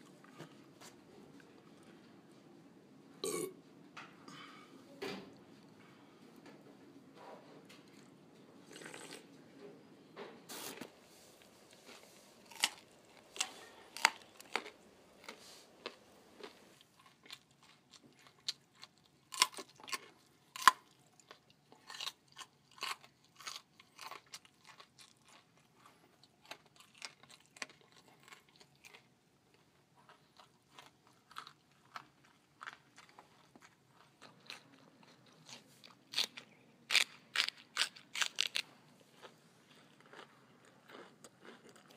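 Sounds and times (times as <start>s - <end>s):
person crunching and chewing: 11.8s - 41.9s.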